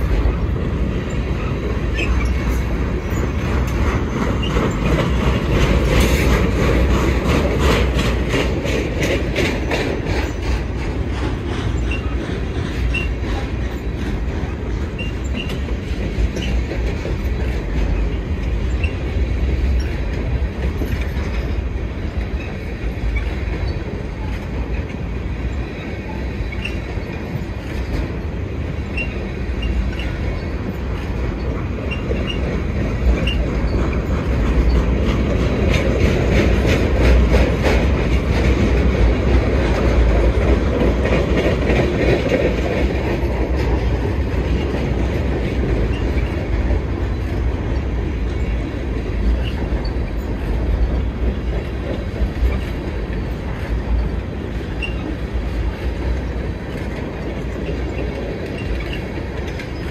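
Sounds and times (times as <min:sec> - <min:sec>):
freight train rumbling past: 0:00.0 - 0:59.9
wheels clicking over rail joints: 0:00.0 - 0:59.9.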